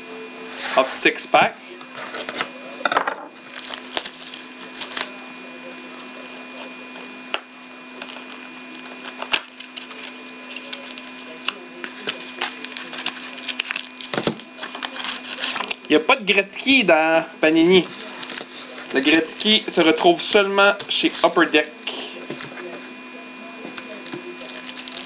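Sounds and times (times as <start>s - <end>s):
wrapper crinkling and tearing: 3.4s - 5.5s, 8.0s - 15.9s, 17.6s - 22.7s, 23.7s - 25.0s.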